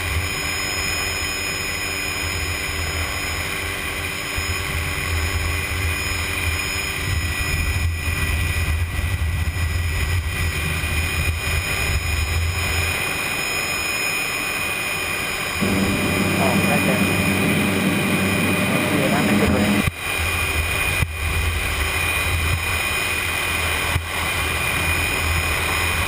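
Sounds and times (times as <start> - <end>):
helicopter engine and rotor drone: 0.0 - 26.0
high whine: 9.6 - 26.0.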